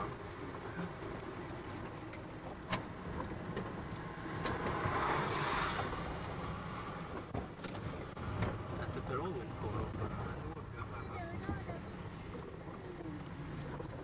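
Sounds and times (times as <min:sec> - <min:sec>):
car cabin rumble on wet road: 0:00.0 - 0:14.0
tyre hiss on wet road: 0:04.8 - 0:07.1.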